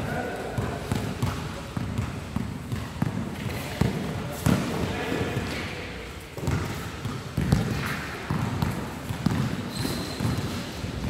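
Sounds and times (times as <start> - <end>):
basketball bouncing on hard floor: 0.6 - 4.7, 6.4 - 10.6.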